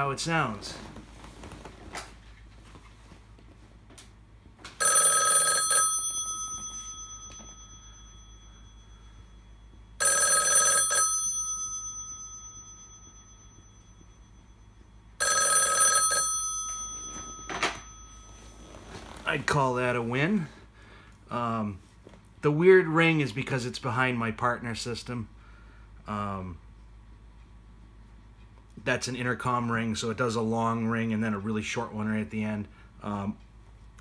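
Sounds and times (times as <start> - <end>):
telephone bell ringing: 4.8 - 19.2.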